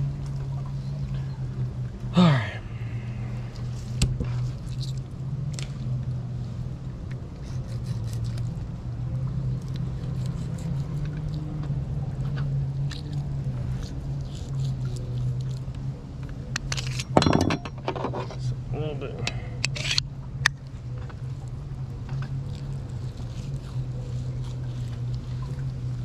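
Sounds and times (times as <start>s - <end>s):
steady low hum: 0.0s - 26.0s
knife scraping fish skin: 7.4s - 8.5s, 10.0s - 11.0s, 13.7s - 15.6s, 19.6s - 20.0s, 22.8s - 25.1s.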